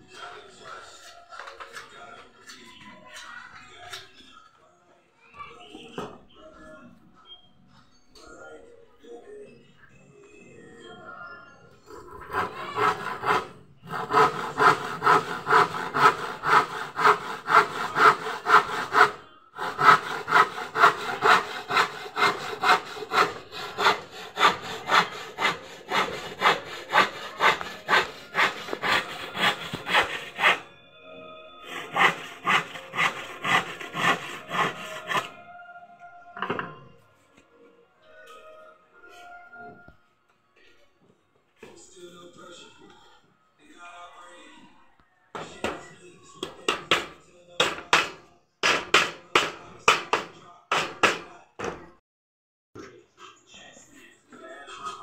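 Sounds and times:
handsaw cutting wood: 12.0s - 30.7s, 31.6s - 35.4s
knock: 46.4s - 51.9s.

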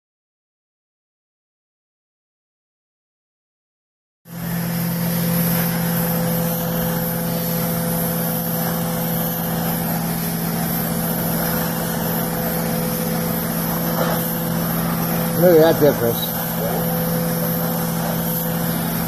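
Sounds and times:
machine low hum: 4.3s - 19.0s
hissing water spray and suction: 4.4s - 19.0s.

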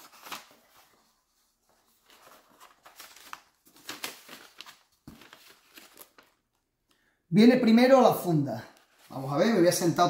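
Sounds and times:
tissue paper rustling: 0.0s - 6.4s, 8.8s - 9.4s.

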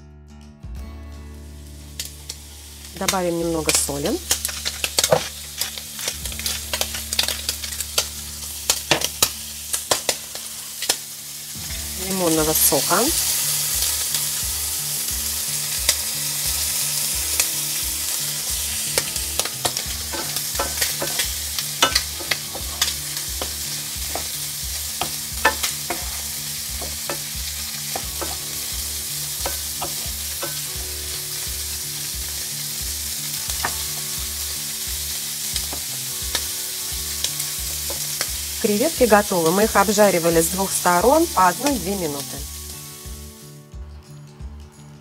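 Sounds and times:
shrimp sizzling in a frying pan: 1.4s - 43.7s.

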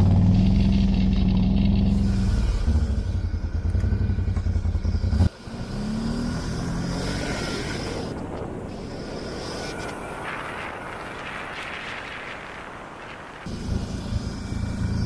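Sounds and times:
atv engine running: 0.0s - 10.1s, 13.5s - 15.0s
rising whine: 0.0s - 15.0s
road noise: 0.0s - 15.0s.

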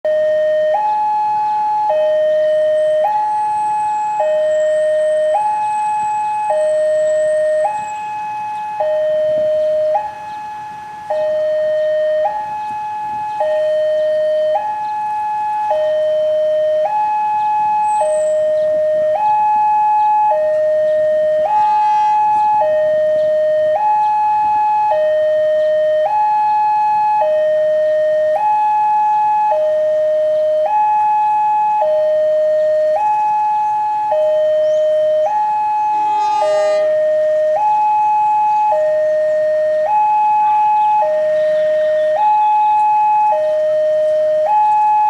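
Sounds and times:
level crossing two-tone alarm: 0.1s - 45.0s
brief high many-pitched sound: 36.1s - 37.0s.

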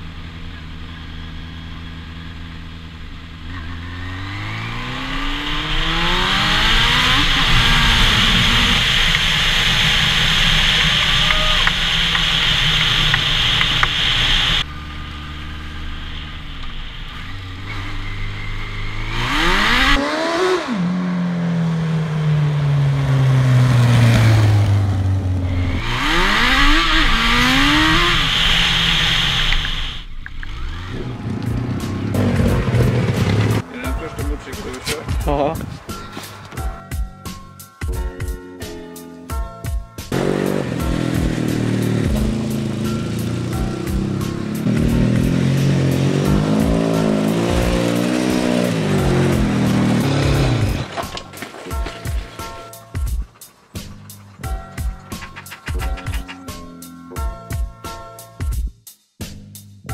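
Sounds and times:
motorcycle engine revving: 0.0s - 38.0s, 39.9s - 57.9s
steady rush: 3.8s - 20.7s, 23.8s - 36.8s, 40.1s - 56.8s.

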